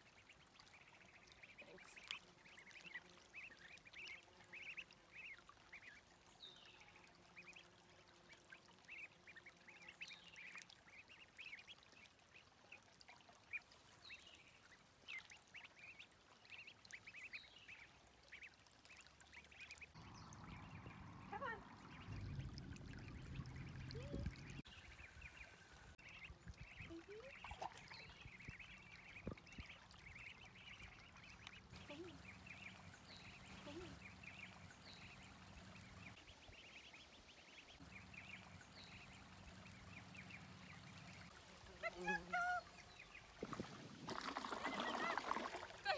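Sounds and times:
ducklings peeping: 0.2s - 6.0s, 8.8s - 11.8s, 13.5s - 43.4s
low rumbling noise: 20.0s - 24.6s.

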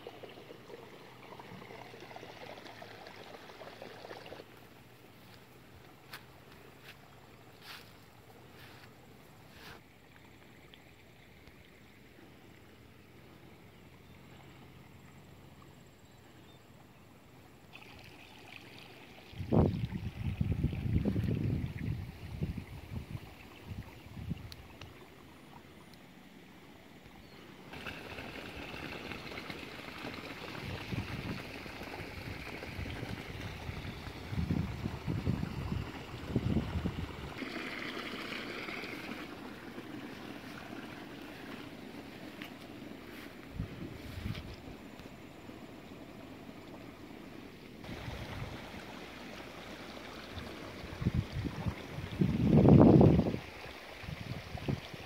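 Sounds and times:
faint steady hiss: 0.0s - 55.0s
wind buffeting microphone: 19.3s - 24.8s, 30.5s - 37.4s, 43.4s - 44.8s, 50.3s - 55.0s.

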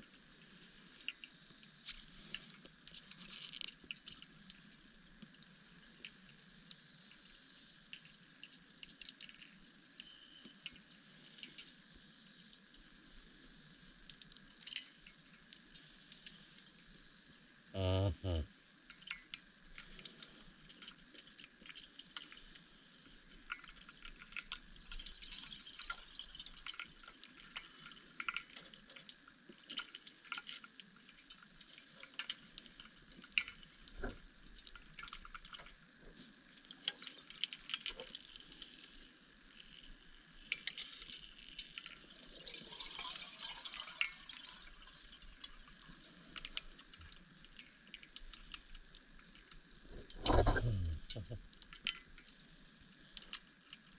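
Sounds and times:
faint steady hum: 0.0s - 53.9s
underwater crackling clicks: 46.4s - 53.9s.

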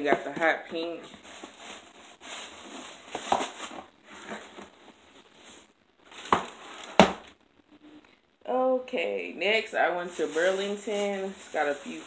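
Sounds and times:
cardboard box rustling and crinkling: 1.0s - 7.0s.

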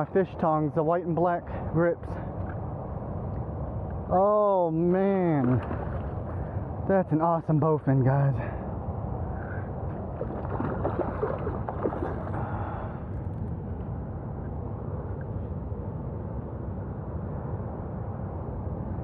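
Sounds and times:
fish splashing at surface: 10.2s - 12.8s.

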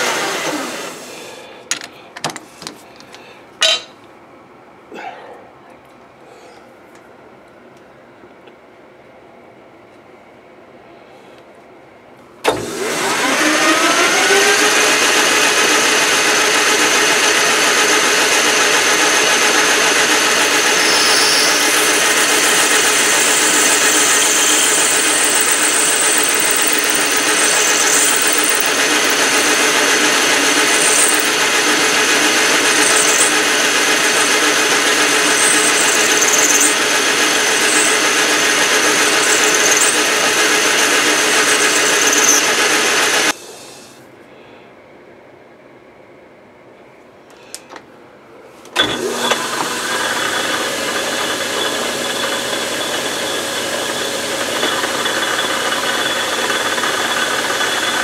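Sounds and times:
metal lathe whine: 12.7s - 43.3s, 48.8s - 58.0s
high squeaks from cutting: 20.4s - 29.7s, 30.4s - 31.4s, 32.6s - 33.4s, 34.0s - 42.5s.

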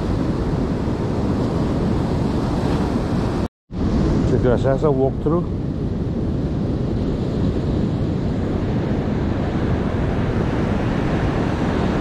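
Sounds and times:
surf breaking on a beach: 0.0s - 12.0s
wind buffeting the microphone: 0.0s - 12.0s.

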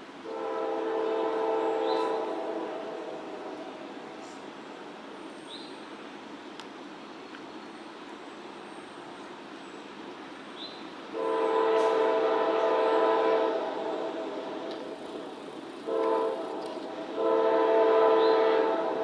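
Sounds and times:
train rumbling: 0.0s - 19.0s
locomotive air horn blasts: 0.2s - 4.4s, 11.1s - 14.4s, 15.8s - 19.0s.

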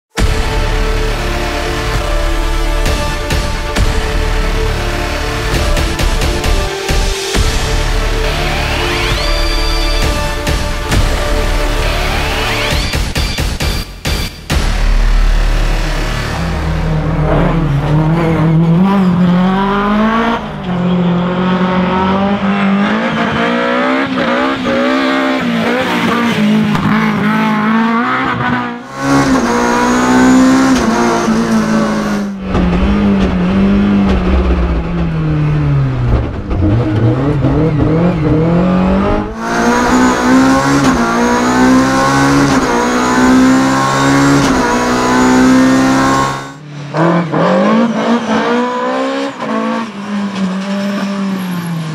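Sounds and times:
car engine at high revs: 14.6s - 51.9s.

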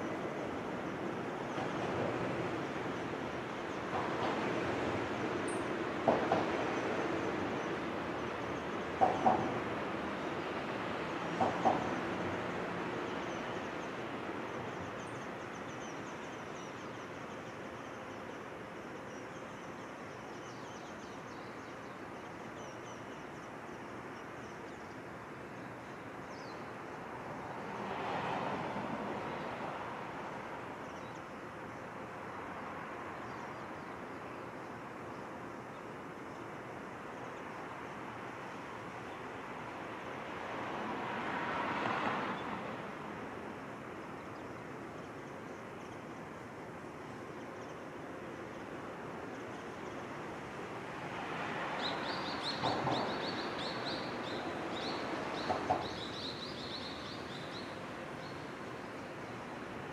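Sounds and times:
bird chirping: 51.8s - 58.4s.

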